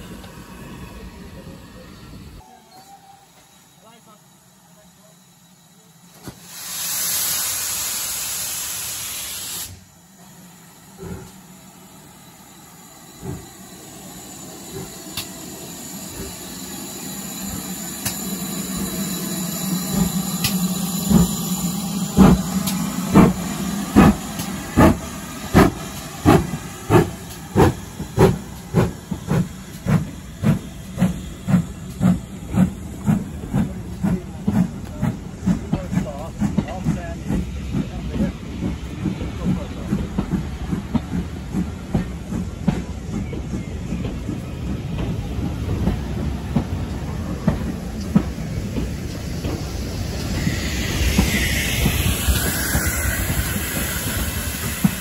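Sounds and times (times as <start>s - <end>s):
steam locomotive exhaust beats: 3.3s - 55.0s
loud hiss of steam: 6.0s - 55.0s.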